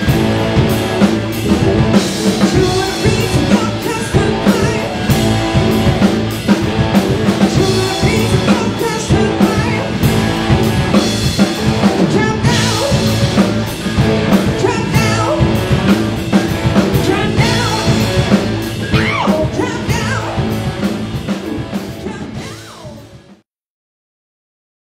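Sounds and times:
drum kit: 0.0 - 23.4
electric guitars: 0.0 - 23.4
woman singing: 2.5 - 5.1, 7.5 - 9.9, 12.0 - 13.1, 14.6 - 15.6, 16.9 - 18.2, 18.9 - 20.5.

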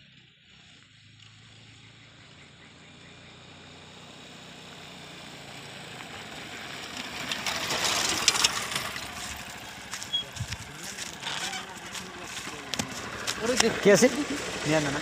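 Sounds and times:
motorcycle engine: 0.0 - 15.0
tyres skidding and dirt spraying: 5.9 - 15.0.

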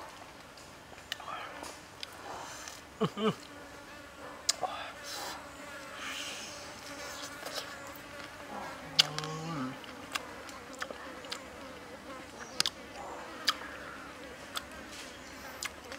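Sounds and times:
insects buzzing: 0.0 - 15.9
wet chewing clicks: 7.2 - 11.5, 12.3 - 13.7, 15.4 - 15.9.

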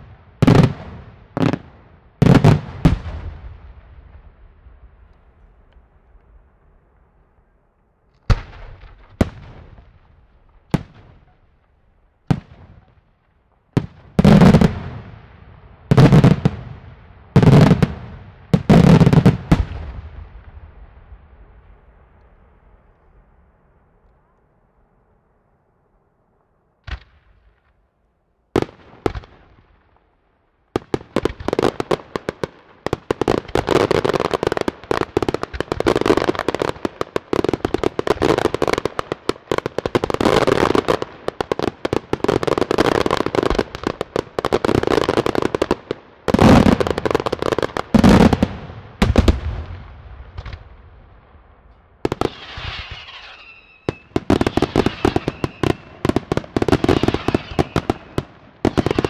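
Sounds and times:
heavy firework booms: 0.0 - 5.1, 46.3 - 59.0
firework bangs: 13.7 - 23.7, 30.8 - 59.0
rapid crackling firework barrage: 30.8 - 59.0
firework whistling: 52.2 - 56.1, 56.7 - 59.0.

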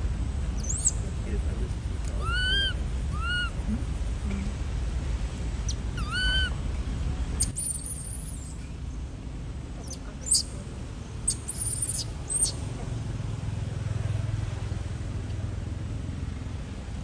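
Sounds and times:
monkey coo calls: 0.6 - 1.0, 2.2 - 3.6, 5.7 - 6.5, 9.8 - 10.4, 11.3 - 12.6.

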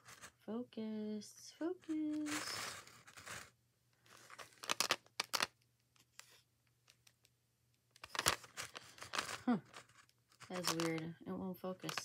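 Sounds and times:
plastic packaging crinkling: 1.8 - 3.5, 4.1 - 5.5, 8.0 - 11.1, 11.8 - 12.0.

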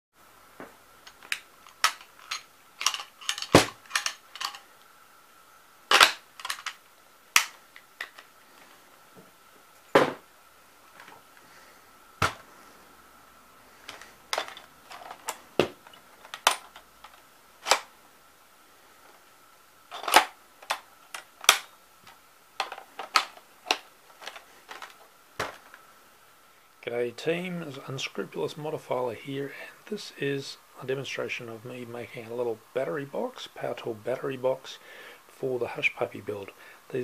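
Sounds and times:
faint high whine: 0.2 - 37.0
plastic parts clicking and knocking: 1.0 - 4.7, 5.9 - 8.7, 12.2 - 12.5, 13.8 - 17.9, 19.9 - 25.8.

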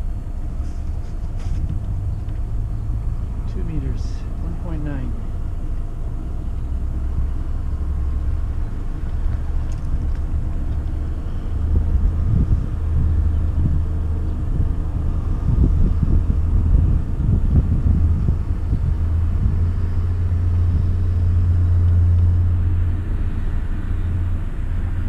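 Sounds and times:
boat engine droning: 0.0 - 25.0
wind buffeting microphone: 5.3 - 25.0.

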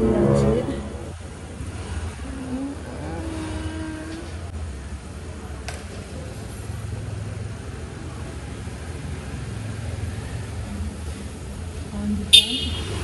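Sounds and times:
auto-rickshaw pulling up: 0.0 - 5.2, 5.8 - 13.0
vehicle engines running: 0.0 - 13.0.

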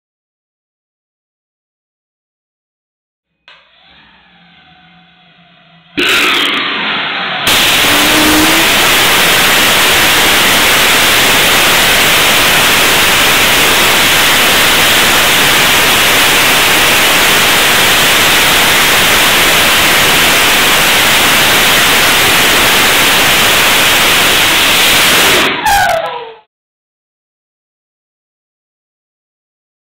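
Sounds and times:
rocket engine exhaust roar: 3.6 - 26.0.

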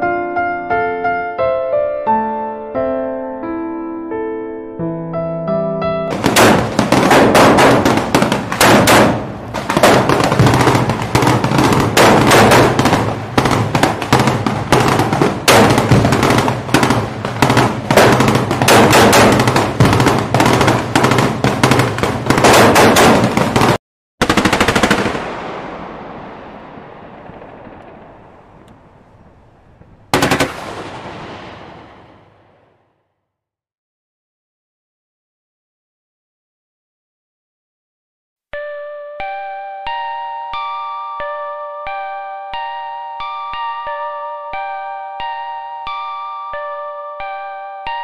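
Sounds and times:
loud blast with echo: 6.1 - 23.8, 24.6 - 32.9
automatic gunfire: 6.1 - 25.6, 30.1 - 32.5.

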